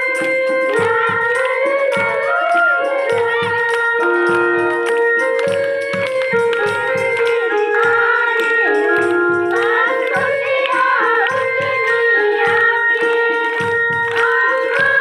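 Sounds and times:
electronic keyboard chords: 0.0s - 15.0s
girls singing together: 0.7s - 4.4s, 7.3s - 15.0s.

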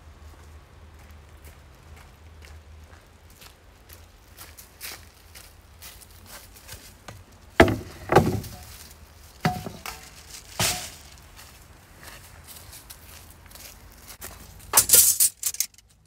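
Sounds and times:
footsteps on dry leaves: 0.3s - 15.5s
cutting board knocking on table: 7.6s - 8.6s
metal item clinking: 14.7s - 15.9s.

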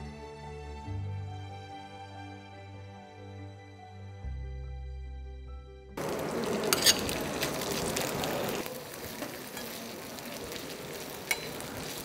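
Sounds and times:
soft background music: 0.0s - 6.0s
food sizzling in frying pan: 6.0s - 12.0s.

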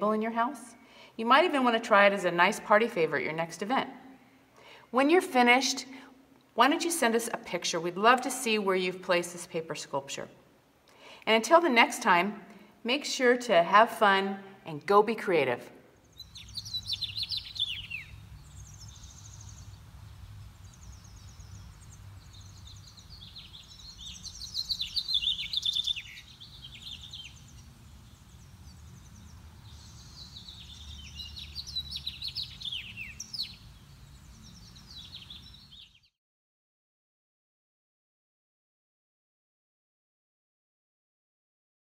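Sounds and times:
songbirds chirping and trilling: 16.0s - 36.1s.

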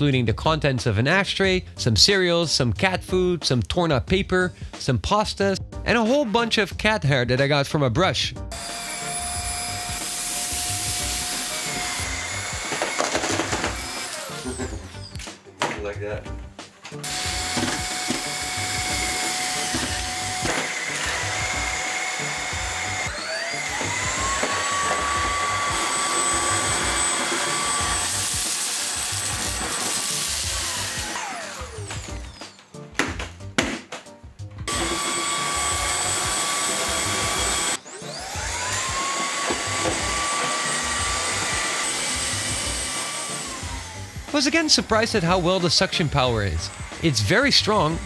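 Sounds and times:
vacuum cleaner whining: 8.5s - 15.2s, 17.0s - 32.7s, 34.7s - 48.0s
background music with beat: 14.4s - 21.8s, 31.6s - 36.4s.

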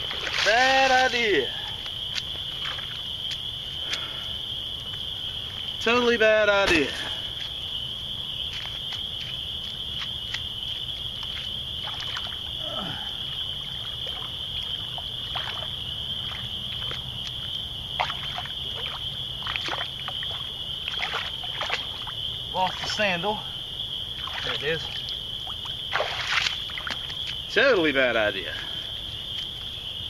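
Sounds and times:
water splashing: 0.0s - 4.1s, 11.2s - 23.2s, 24.1s - 27.6s
insects trilling: 0.0s - 30.0s.

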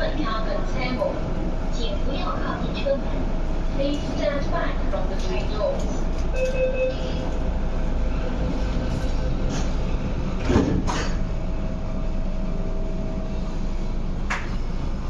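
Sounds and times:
train carriage hum: 0.0s - 15.0s
sliding train doors thudding shut: 10.4s - 11.3s.

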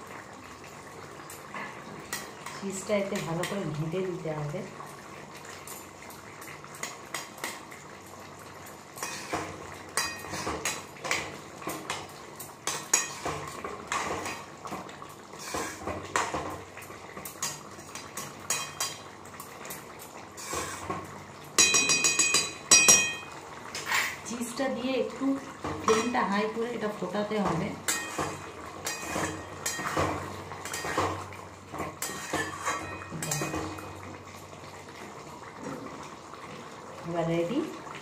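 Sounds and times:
spoon stirring and scraping pan: 8.9s - 24.2s, 25.6s - 26.5s, 27.3s - 34.2s.

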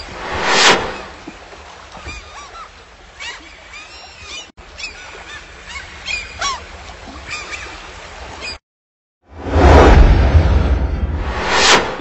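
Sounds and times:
background noise wash: 0.0s - 8.5s.

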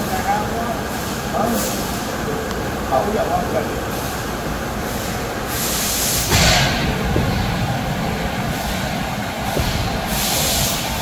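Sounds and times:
laser cutter rumble and hiss: 0.0s - 11.0s.

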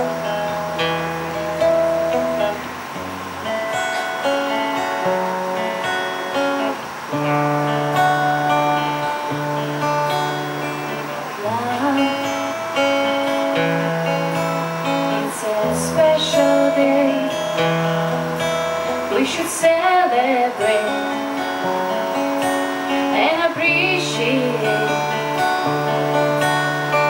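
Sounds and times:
acoustic guitar chords: 0.0s - 27.0s
woman singing into microphone: 11.3s - 12.9s, 14.8s - 17.7s, 19.1s - 21.7s, 22.8s - 25.7s.

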